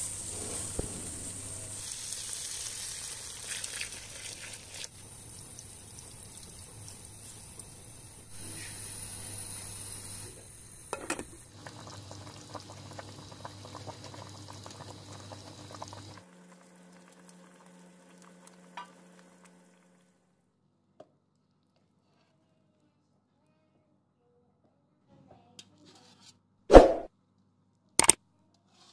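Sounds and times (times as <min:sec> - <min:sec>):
sauce bubbling and sizzling in a pan: 0:00.0 - 0:10.8, 0:11.4 - 0:20.2.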